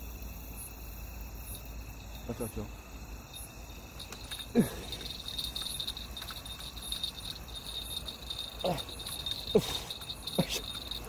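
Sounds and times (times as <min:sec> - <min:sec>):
crickets chirping: 0:00.0 - 0:11.0.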